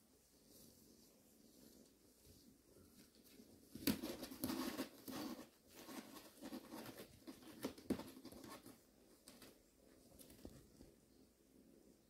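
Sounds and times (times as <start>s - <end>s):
kittens scratching cardboard: 3.0s - 9.6s.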